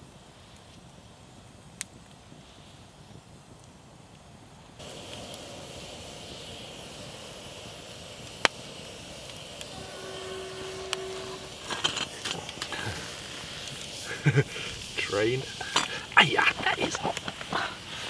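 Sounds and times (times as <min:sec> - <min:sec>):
campfire hissing: 0:00.0 - 0:18.0
fire crackle: 0:00.0 - 0:18.0
metal pots clinking on grill: 0:11.1 - 0:13.0, 0:15.6 - 0:17.6.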